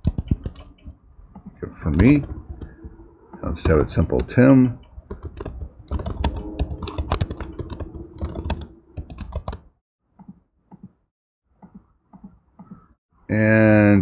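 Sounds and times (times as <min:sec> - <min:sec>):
typing on computer keyboard: 0:00.0 - 0:01.5, 0:05.1 - 0:10.9.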